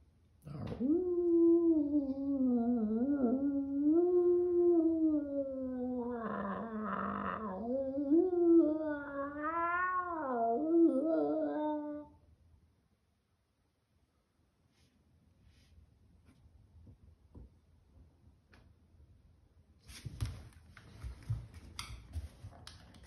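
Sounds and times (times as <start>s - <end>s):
wavering meow-like wail: 0.5s - 12.2s.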